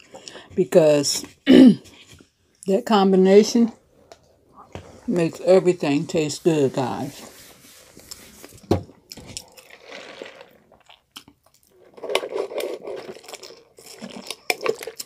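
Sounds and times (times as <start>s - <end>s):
person chewing with crunches: 7.9s - 15.0s
sipping through a straw: 9.3s - 11.0s.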